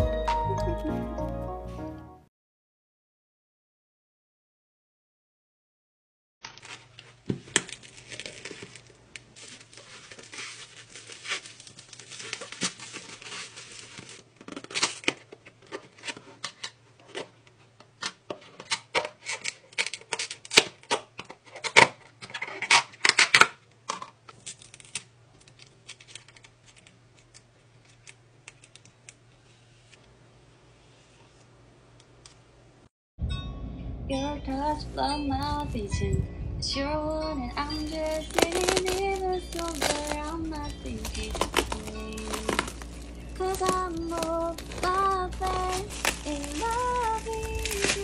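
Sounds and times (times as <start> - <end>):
plastic packaging crinkling: 6.4 - 29.2, 37.6 - 48.0
faint low hum: 33.5 - 48.0.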